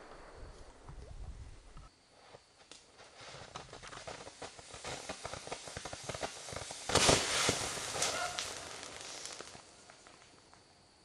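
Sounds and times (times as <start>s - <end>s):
fireworks crackling and popping: 0.0s - 10.7s
ground firework hissing: 3.0s - 10.5s.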